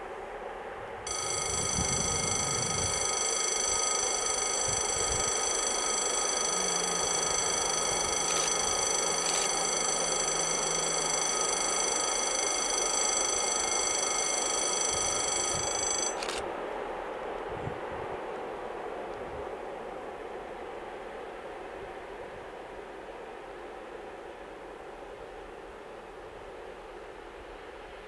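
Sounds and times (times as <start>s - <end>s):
high-pitched whine: 1.1s - 16.3s
faint low hum: 1.1s - 16.4s.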